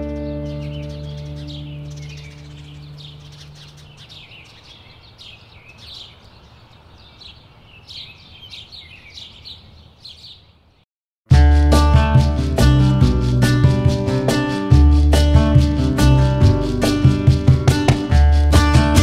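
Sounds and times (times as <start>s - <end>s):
background music: 0.0s - 3.1s, 11.3s - 19.0s
small birds chirping: 0.0s - 10.9s.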